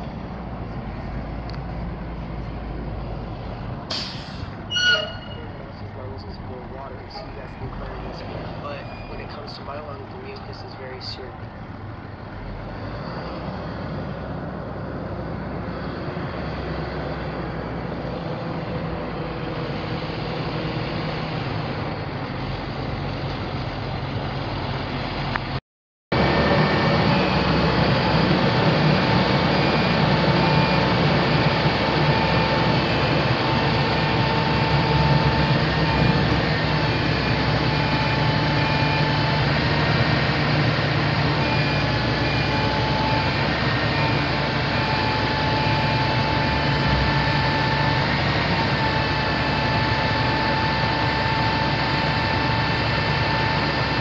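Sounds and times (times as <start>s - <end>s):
diesel truck engine running: 0.0s - 54.0s
steady high whine: 26.1s - 54.0s.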